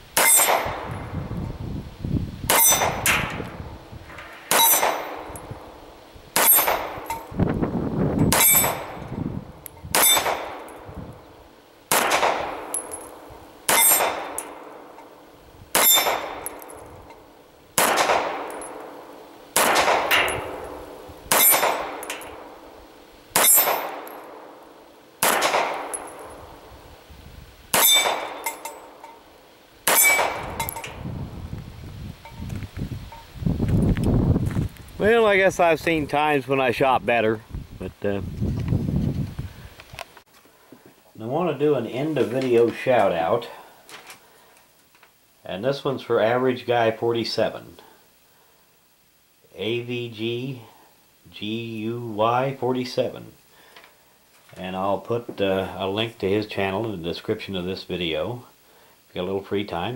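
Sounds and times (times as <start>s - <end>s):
pistol shots: 0.2s - 0.9s, 4.4s - 5.4s, 6.4s - 7.1s, 8.3s - 9.1s, 9.9s - 10.9s, 11.9s - 15.0s, 15.7s - 16.8s, 17.8s - 22.7s, 23.3s - 26.4s, 27.7s - 29.0s, 29.8s - 30.8s
steel target plate clanging: 0.2s - 1.0s, 2.5s - 3.4s, 4.1s - 5.5s, 6.4s - 7.4s, 8.2s - 9.1s, 10.0s - 10.9s, 12.6s - 15.1s, 15.8s - 17.2s, 20.1s - 22.5s, 23.4s - 24.4s, 27.7s - 29.2s, 29.9s - 31.0s.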